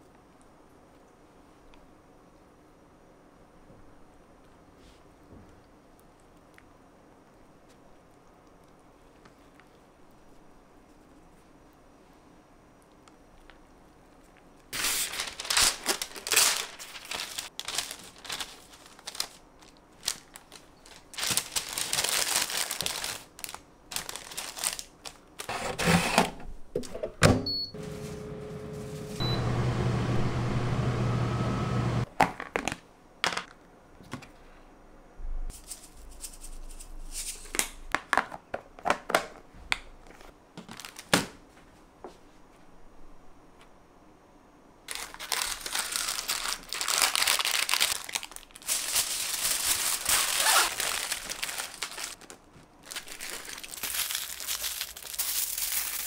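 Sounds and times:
parchment paper crinkling and tearing: 14.7s - 26.0s, 44.9s - 56.0s
air fryer fan humming: 27.0s - 32.1s
touch panel beeps: 27.4s - 27.8s, 29.2s - 29.7s.

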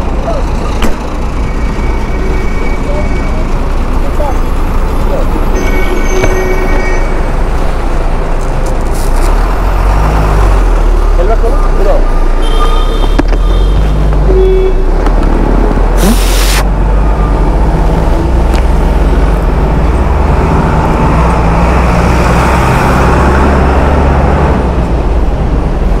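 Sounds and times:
loud hiss: 16.0s - 16.6s.

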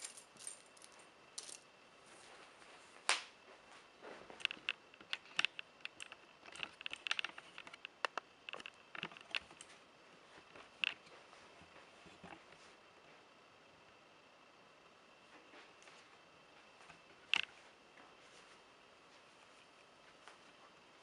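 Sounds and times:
handcuffs and chain clinking: 0.0s - 1.6s.

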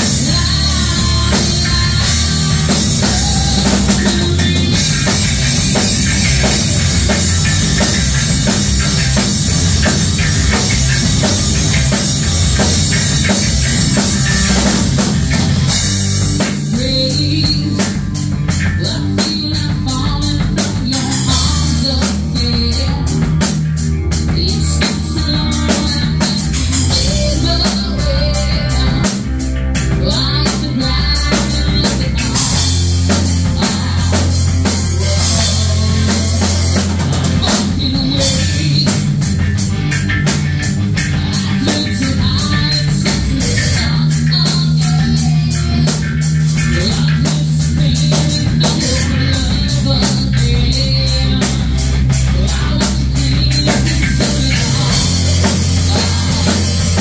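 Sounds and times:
woman singing: 0.0s - 6.5s, 16.4s - 39.2s, 41.0s - 57.0s
heavy metal band playing: 0.0s - 57.0s.

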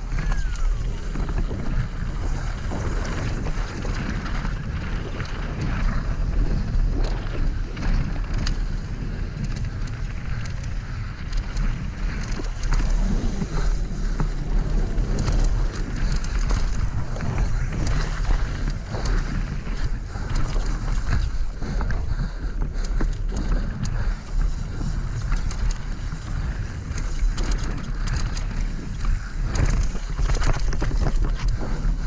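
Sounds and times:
bike clattering over bumps: 0.0s - 32.0s
wind buffeting microphone: 0.0s - 32.0s
tyres rolling on gravel: 11.2s - 32.0s.

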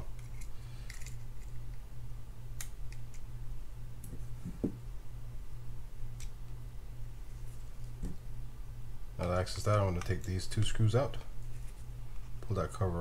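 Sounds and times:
low steady hum: 0.0s - 13.0s
soft knock: 4.4s - 4.8s.

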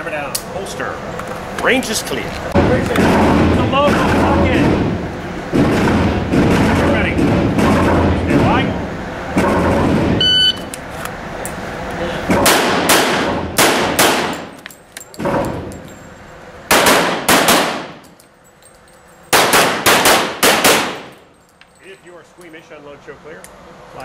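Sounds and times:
handgun shots echoing indoors: 12.4s - 14.6s, 16.7s - 18.2s, 19.3s - 21.2s.

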